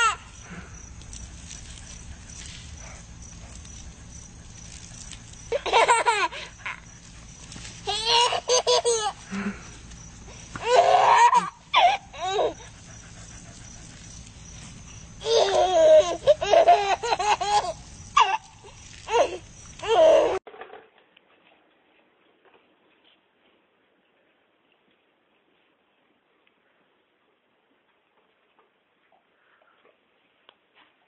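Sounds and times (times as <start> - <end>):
person laughing: 5.5 - 6.9, 7.9 - 9.8, 10.6 - 12.7, 15.2 - 18.5.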